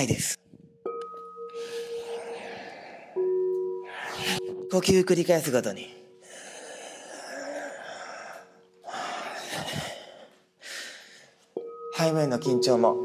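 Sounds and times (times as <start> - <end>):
crystal singing bowls ringing: 0.9 - 6.2, 11.6 - 13.0
person breathing deeply: 1.5 - 4.7, 6.1 - 11.4.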